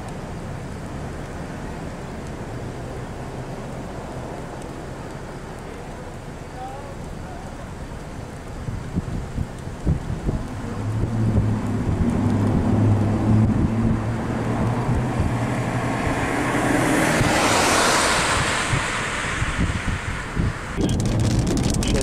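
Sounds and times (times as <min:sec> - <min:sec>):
wind buffeting microphone: 0:08.6 - 0:22.0
car passing by: 0:10.5 - 0:20.8.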